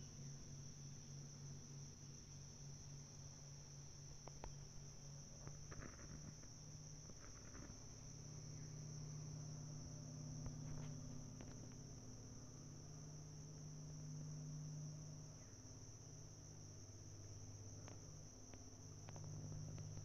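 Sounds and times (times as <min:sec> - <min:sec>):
insects trilling: 0:00.0 - 0:20.0
low steady hum: 0:00.0 - 0:20.0
soft rustles and clicks: 0:05.3 - 0:08.1, 0:10.4 - 0:12.1, 0:17.8 - 0:20.0.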